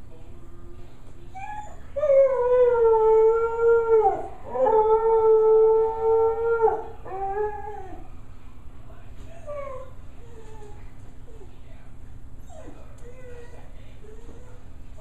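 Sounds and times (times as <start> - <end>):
dog howling: 1.4 - 8.1.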